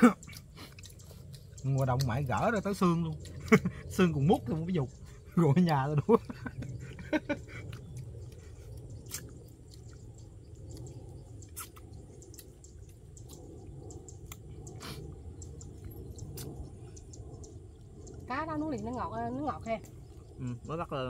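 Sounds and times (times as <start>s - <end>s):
people chewing: 0.0s - 20.9s
low steady rumble: 0.0s - 21.0s.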